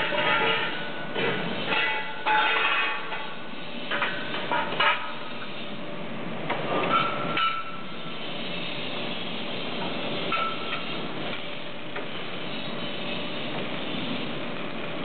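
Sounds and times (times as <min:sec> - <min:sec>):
metal clanks with ringing: 0:00.0 - 0:05.3, 0:06.9 - 0:08.0, 0:10.3 - 0:11.0
machine hissing: 0:07.2 - 0:15.0.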